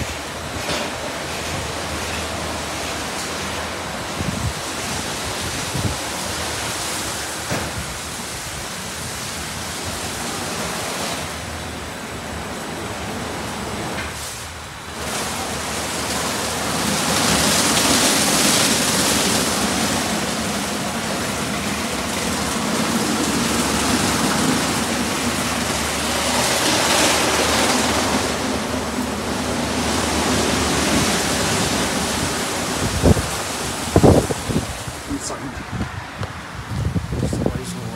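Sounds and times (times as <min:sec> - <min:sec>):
water spraying: 0:00.0 - 0:37.9
wash brushes scrubbing car: 0:13.7 - 0:35.8.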